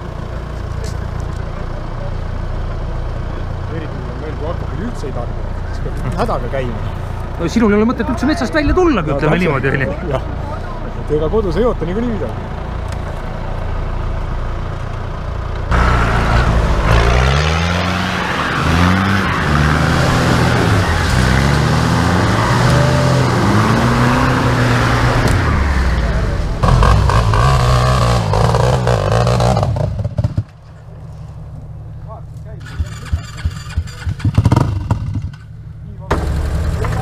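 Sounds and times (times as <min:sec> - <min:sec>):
off-road engine revving hard: 0:15.7 - 0:30.4, 0:32.6 - 0:35.4.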